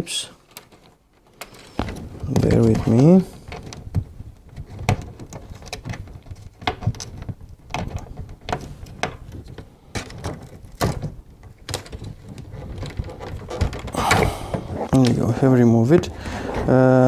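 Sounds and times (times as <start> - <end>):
cables rustling: 0.0 - 17.0.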